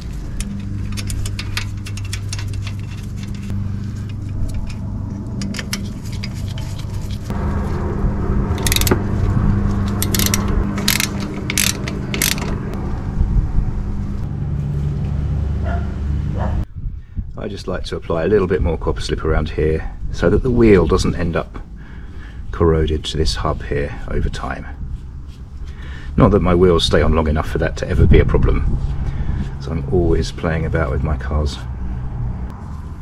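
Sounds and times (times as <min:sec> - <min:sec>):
ratchet wrench clicking: 0:00.0 - 0:03.5, 0:08.6 - 0:09.0, 0:09.9 - 0:12.6
steady low hum: 0:00.0 - 0:33.0.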